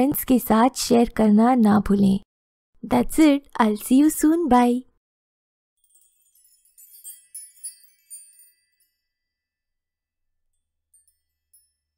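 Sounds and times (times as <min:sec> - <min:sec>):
tinkling chime jingle: 0:05.8 - 0:11.9.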